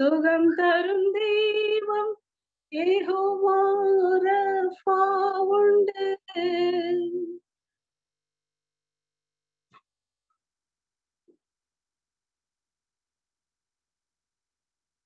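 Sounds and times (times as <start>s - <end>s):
woman singing unaccompanied: 0.0s - 7.4s.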